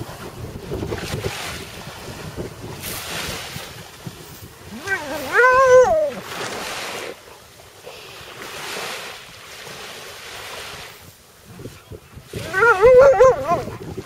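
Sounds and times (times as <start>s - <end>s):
wind buffeting microphone: 0.0s - 6.7s, 10.5s - 14.0s
waves washing in: 0.0s - 14.0s
dog howling: 4.7s - 6.3s, 12.4s - 13.8s.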